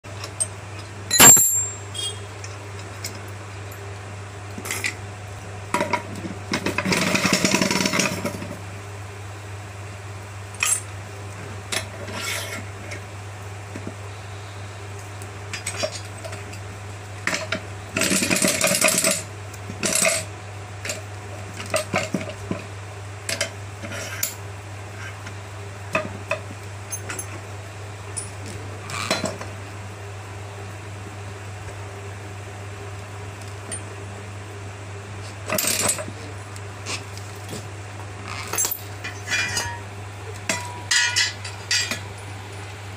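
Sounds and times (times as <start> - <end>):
metal tools clinking and knocking: 1.1 - 2.1, 38.3 - 39.8, 40.5 - 42.0.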